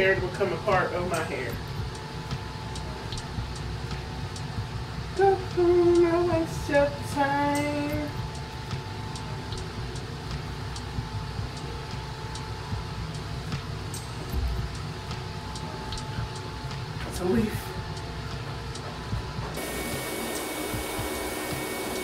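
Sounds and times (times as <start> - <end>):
steady low hum: 0.0 - 22.0
woman singing wordless notes: 5.2 - 8.2.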